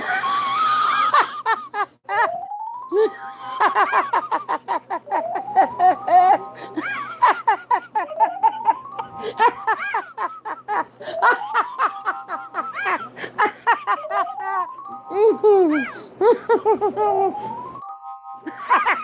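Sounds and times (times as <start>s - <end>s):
old woman cackling laughter: 3.0s - 14.6s.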